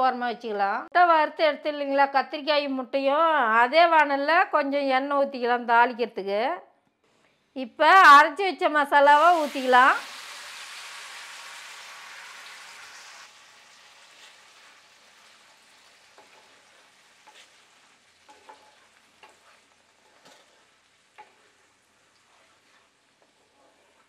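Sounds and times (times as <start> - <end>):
paste sizzling in hot oil: 9.0 - 24.0
wooden spatula scraping pan: 14.1 - 24.0.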